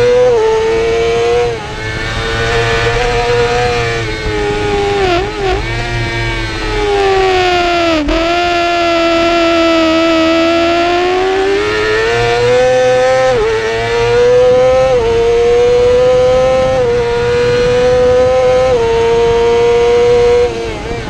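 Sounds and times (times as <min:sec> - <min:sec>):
motorcycle engine accelerating: 0:00.0 - 0:21.0
wind rushing: 0:00.9 - 0:08.7.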